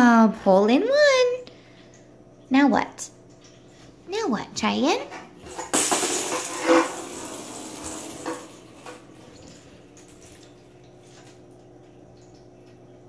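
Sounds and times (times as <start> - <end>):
plastic ball rolling in bathtub: 5.3 - 10.2.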